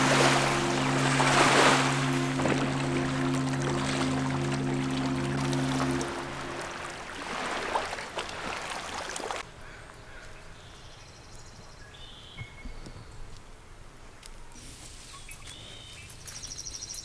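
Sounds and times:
waves lapping on rocks: 0.0 - 9.4.

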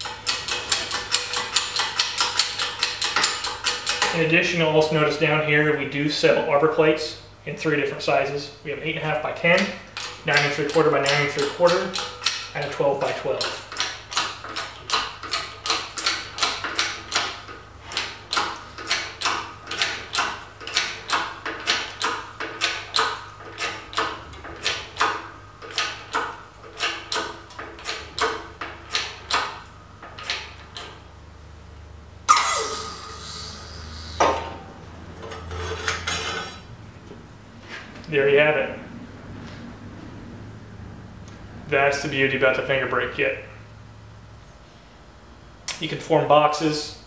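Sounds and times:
hydraulic jack pumping clicks: 0.0 - 4.2, 9.5 - 31.0
falling hydraulic whine: 32.3 - 34.8
metal clank: 34.2 - 36.7.

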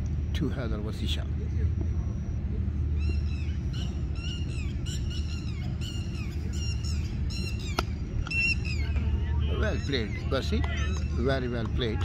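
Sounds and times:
birds chirping: 0.9 - 12.0.

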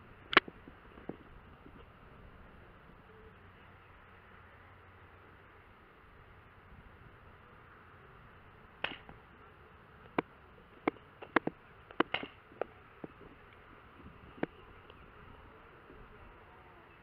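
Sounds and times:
paintball marker shots: 8.8 - 9.2, 10.1 - 13.2.

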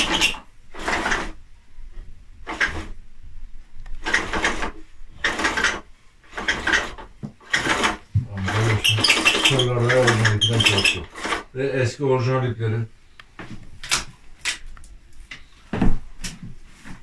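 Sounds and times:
window blind cord rasping: 0.0 - 1.4, 2.4 - 3.0, 3.9 - 11.5.

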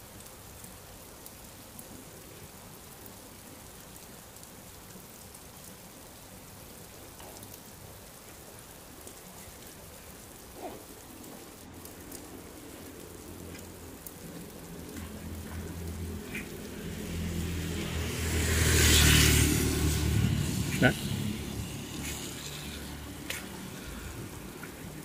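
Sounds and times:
rain hissing on wet asphalt: 0.0 - 25.0
scattered raindrops: 0.0 - 25.0
motorbike engine approaching: 14.6 - 25.0.

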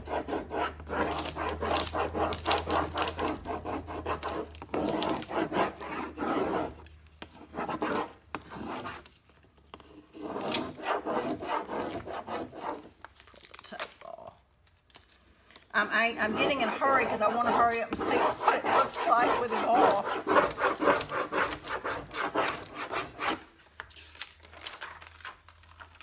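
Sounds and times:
applicator rubbing on painted surface: 0.0 - 9.1, 9.8 - 13.0, 15.8 - 23.4.

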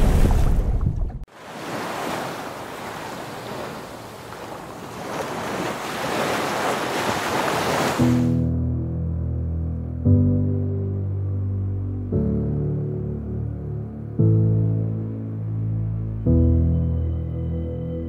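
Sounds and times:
ocean waves surging: 1.3 - 8.5.

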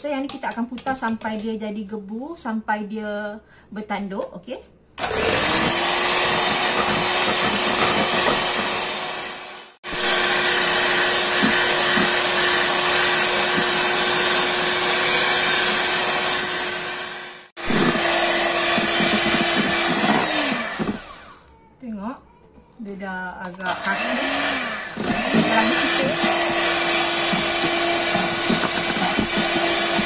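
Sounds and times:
electric hand mixer humming: 5.0 - 21.4, 23.7 - 30.0.

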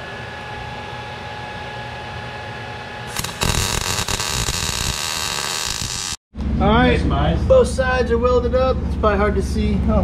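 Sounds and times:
welding arc crackling: 3.1 - 6.2.

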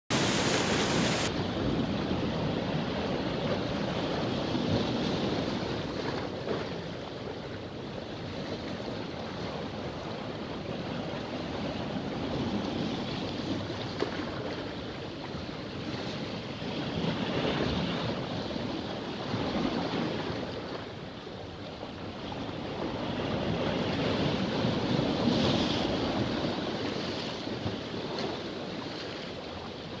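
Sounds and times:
sea surf breaking on rocks: 0.1 - 7.7.

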